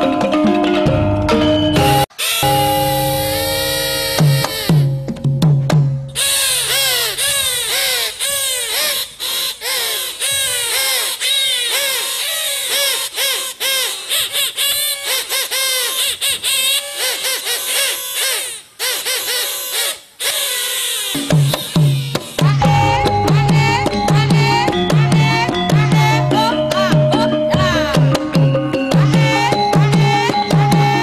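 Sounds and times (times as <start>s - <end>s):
nasal high melody: 1.3s - 5.2s, 6.1s - 11.2s, 21.0s - 31.0s
drumming: 4.0s - 8.0s, 21.2s - 31.0s.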